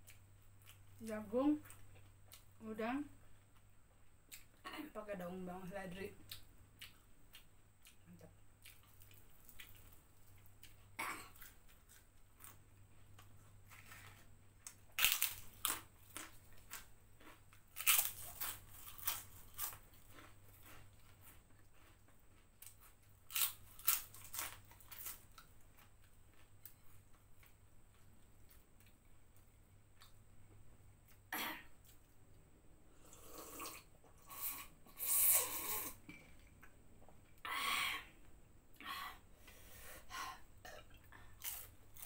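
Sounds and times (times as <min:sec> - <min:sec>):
quiet chewing: 0:06.3 - 0:14.8, 0:15.6 - 0:30.2
crunching crispy snacks: 0:13.2 - 0:26.6, 0:41.4 - 0:42.0.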